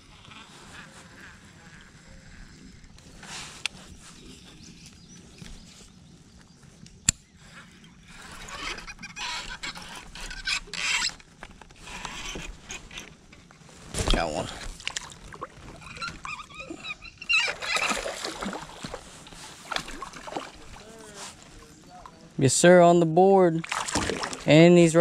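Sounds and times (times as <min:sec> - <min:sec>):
fishing reel whirring: 0:08.0 - 0:12.4.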